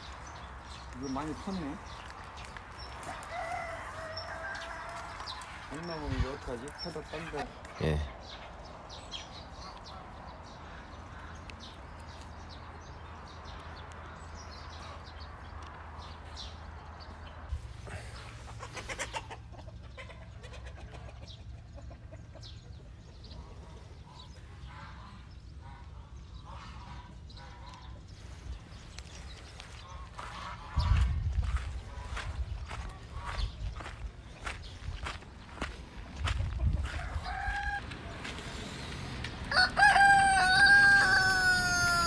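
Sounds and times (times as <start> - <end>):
chickens clucking: 17.9 - 28.2, 28.9 - 42.0.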